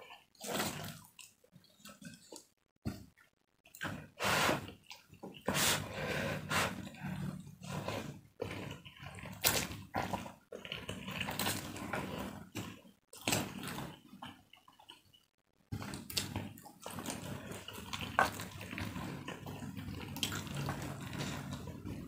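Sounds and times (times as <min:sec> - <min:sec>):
person slurping noodles: 0:04.0 - 0:04.8, 0:05.4 - 0:09.2
person chewing: 0:16.0 - 0:21.7.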